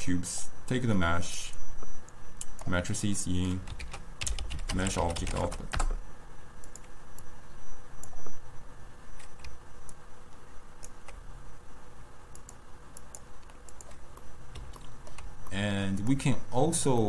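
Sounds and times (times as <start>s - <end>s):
computer keyboard clicks: 3.6s - 6.0s, 12.4s - 14.0s
computer mouse clicks: 6.6s - 7.3s, 10.8s - 11.2s, 12.3s - 16.1s.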